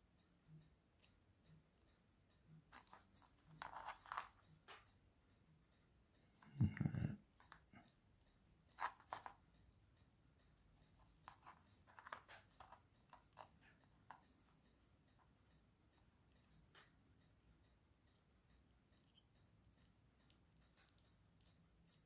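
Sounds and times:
faint scratching: 0:02.7 - 0:04.9, 0:08.7 - 0:09.4, 0:11.0 - 0:14.6.

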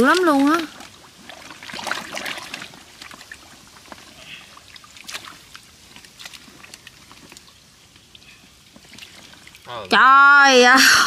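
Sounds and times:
hands splashing in muddy water: 0:00.0 - 0:07.5
wet clicks and trickles: 0:00.0 - 0:10.0.

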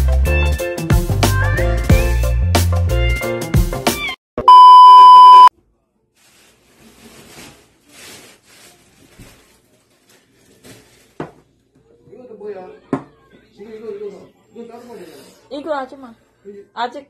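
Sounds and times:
background music with bass and guitar: 0:00.0 - 0:04.1
steady electronic beep: 0:04.4 - 0:05.5
soft rustles: 0:06.2 - 0:11.2.

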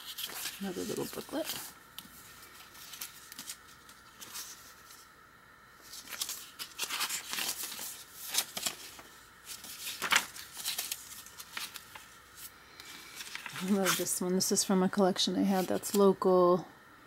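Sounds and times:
paper pages turning: 0:00.0 - 0:05.1, 0:05.8 - 0:14.2.

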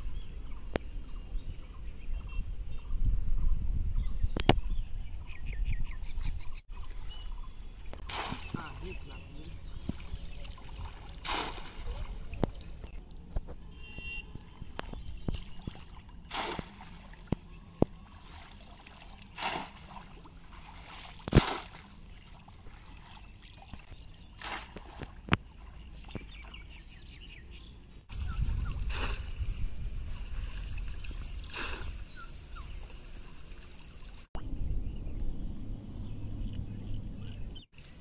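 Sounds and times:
river water splashing and sloshing: 0:06.8 - 0:34.8
sharp splashes: 0:08.0 - 0:12.6, 0:14.9 - 0:26.6
low rumble: 0:34.4 - 0:37.6.

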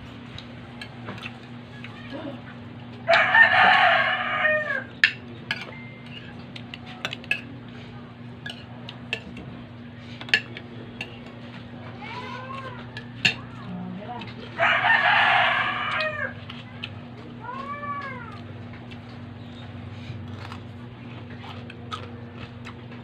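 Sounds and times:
rooster crowing: 0:03.0 - 0:05.0, 0:14.6 - 0:16.4
cutlery scraping on plates: 0:05.0 - 0:07.5, 0:08.4 - 0:09.4.

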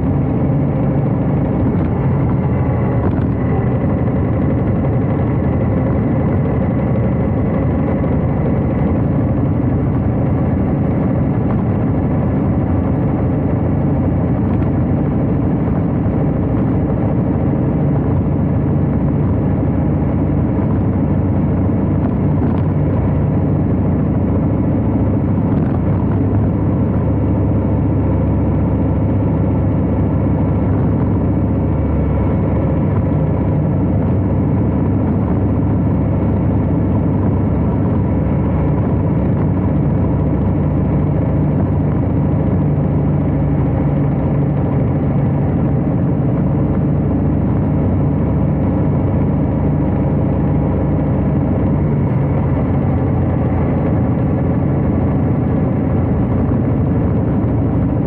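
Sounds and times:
motorcycle engine running: 0:00.0 - 0:58.0.

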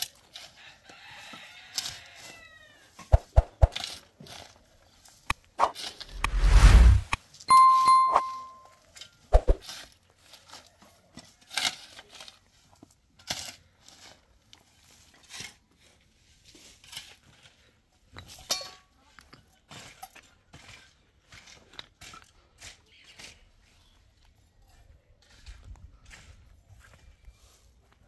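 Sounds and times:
bell-like tone: 0:07.5 - 0:08.8.

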